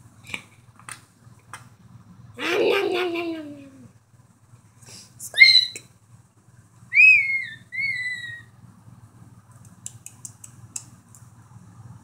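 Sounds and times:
squeaky dog toy: 0:07.0 - 0:08.5.

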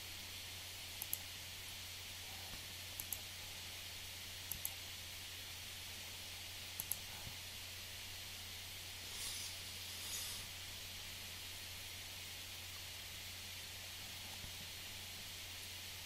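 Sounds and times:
low hum and hiss: 0:00.0 - 0:16.0
computer mouse clicks: 0:01.0 - 0:01.3, 0:02.9 - 0:03.3, 0:04.5 - 0:04.8, 0:06.8 - 0:07.1.

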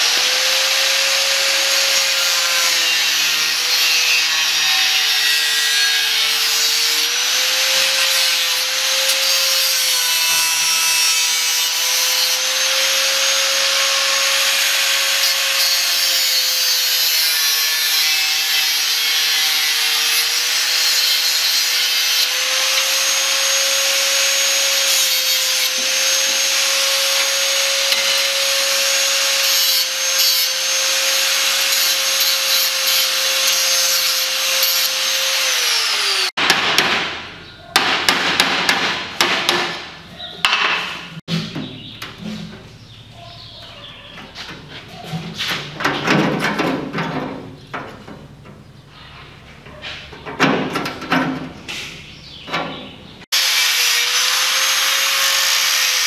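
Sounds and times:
angle grinder grinding steel: 0:00.0 - 0:36.4, 0:53.3 - 0:56.0.

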